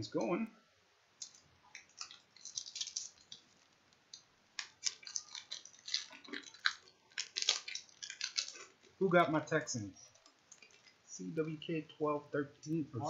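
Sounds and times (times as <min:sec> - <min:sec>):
foil wrapper crinkling: 0:01.2 - 0:09.0, 0:10.0 - 0:11.0.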